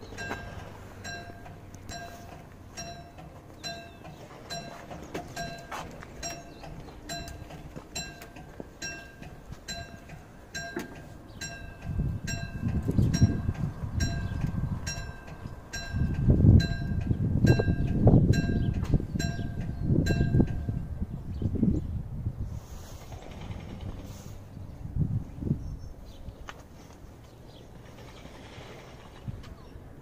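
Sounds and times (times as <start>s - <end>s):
level crossing bell ringing: 0.1s - 13.4s.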